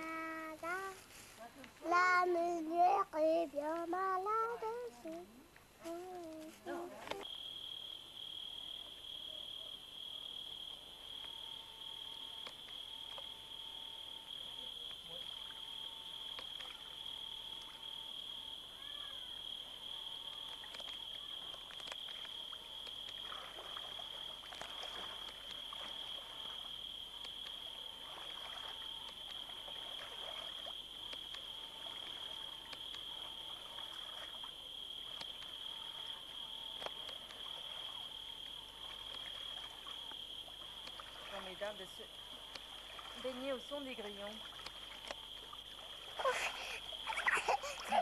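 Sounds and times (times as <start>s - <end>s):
crickets trilling: 0.0s - 48.0s
water splashing in a pool: 14.3s - 48.0s.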